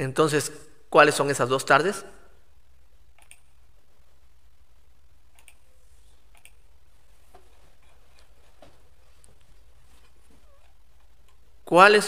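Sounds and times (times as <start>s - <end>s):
low steady hum: 0.0s - 11.8s
computer mouse clicks: 3.2s - 3.5s, 5.3s - 5.6s, 6.3s - 6.6s.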